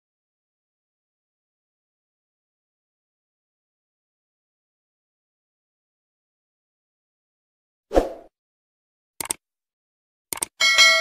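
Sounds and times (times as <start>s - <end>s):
mouse clicks: 9.2s - 9.4s, 10.3s - 10.5s
bell-like notification ding: 10.6s - 11.0s.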